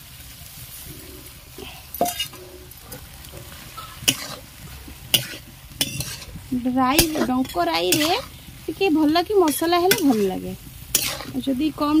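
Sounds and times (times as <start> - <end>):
faint sizzle: 0.0 - 12.0
ladle stirring paste in pan: 2.0 - 11.5.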